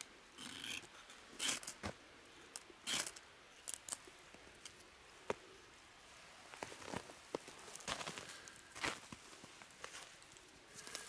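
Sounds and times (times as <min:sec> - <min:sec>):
ferro rod scraping: 0:00.4 - 0:01.9, 0:02.9 - 0:03.9.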